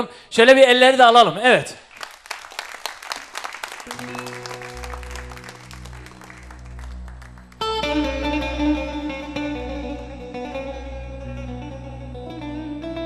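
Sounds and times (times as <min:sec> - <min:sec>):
audience applauding: 0:01.9 - 0:08.1
held instrumental tones: 0:03.9 - 0:13.0
low bass drone: 0:03.9 - 0:13.0
plucked string instrument: 0:03.9 - 0:13.0.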